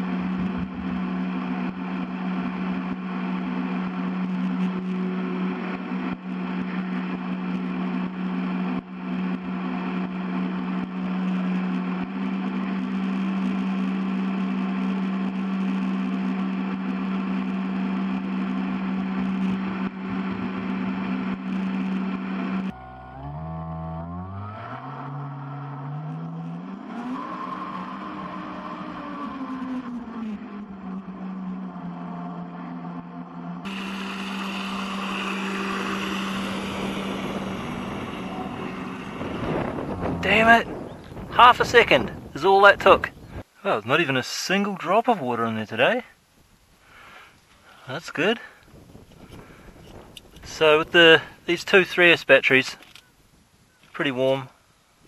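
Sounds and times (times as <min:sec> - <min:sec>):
toy boat electric motor humming: 0:00.0 - 0:40.9.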